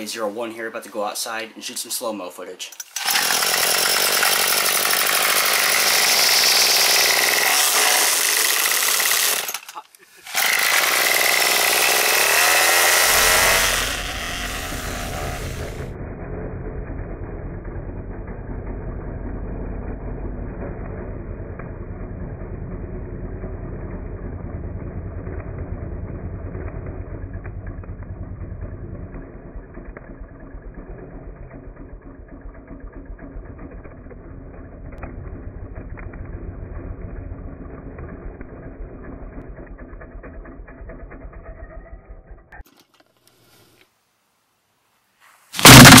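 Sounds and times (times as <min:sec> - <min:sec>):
string trimmer motor rattling: 0:02.7 - 0:15.9, 0:45.6 - 0:46.0.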